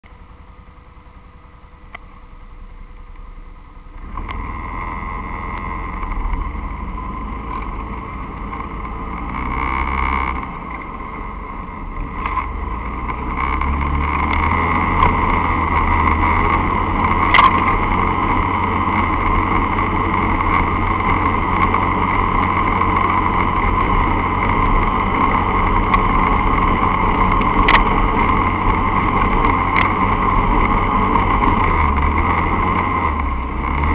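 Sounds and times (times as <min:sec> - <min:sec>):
motorcycle engine running: 0:00.0 - 0:33.9.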